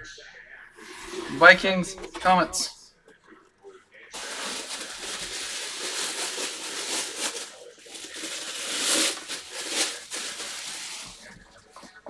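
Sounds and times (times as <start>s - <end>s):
plastic bag crinkling: 4.2s - 11.7s.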